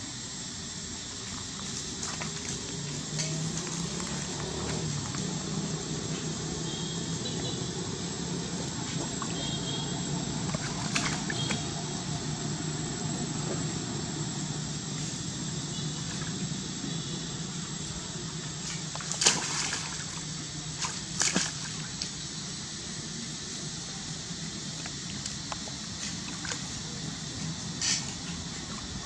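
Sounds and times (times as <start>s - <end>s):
outdoor background hum: 0.0s - 29.0s
sharp water splashes: 9.1s - 11.8s, 18.5s - 22.2s
shallow water sloshing and splashing: 10.4s - 11.8s, 18.4s - 22.1s.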